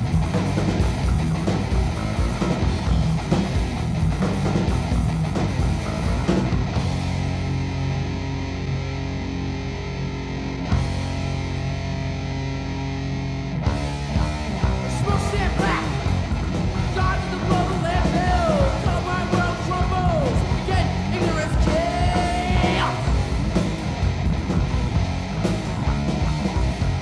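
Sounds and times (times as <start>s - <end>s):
distorted electric guitar: 0.0s - 27.0s
drums: 0.0s - 27.0s
yelled vocals: 13.9s - 27.0s.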